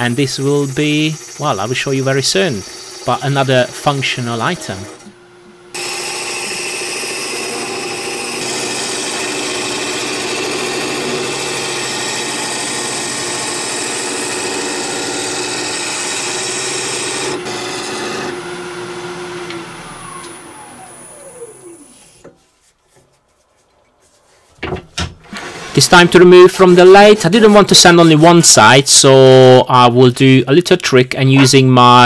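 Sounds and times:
lathe tool scraping wood: 0.0 - 5.1, 5.7 - 22.2, 25.3 - 28.4
lathe motor whine: 0.0 - 22.3.

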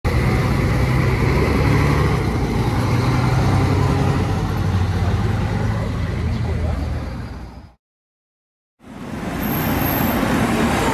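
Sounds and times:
bus engine droning: 0.1 - 7.8.

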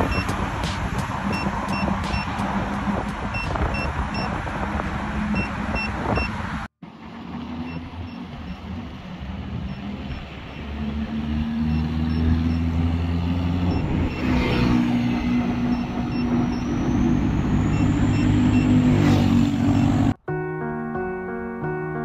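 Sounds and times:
wind noise on microphone: 0.0 - 6.7.

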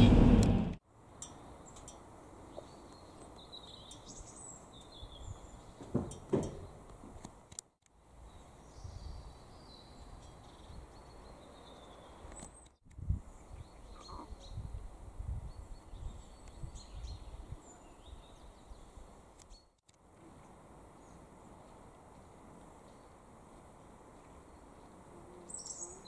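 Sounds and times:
faint low rumble: 0.0 - 0.8
small birds chirping: 1.4 - 5.9, 8.2 - 19.8, 20.4 - 26.0.

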